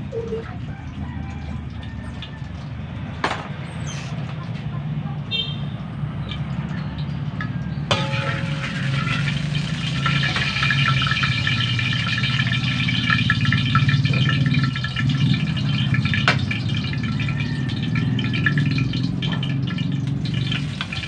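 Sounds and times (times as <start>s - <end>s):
oil crackling and popping: 0.0s - 4.7s, 6.2s - 21.0s
gas stove low rumble: 7.8s - 21.0s.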